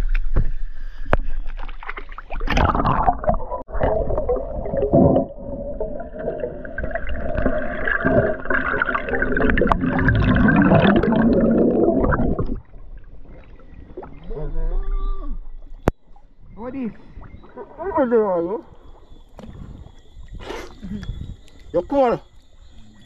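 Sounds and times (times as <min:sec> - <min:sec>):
water splashing: 0:01.1 - 0:20.8
muffled underwater gurgling: 0:02.6 - 0:15.5.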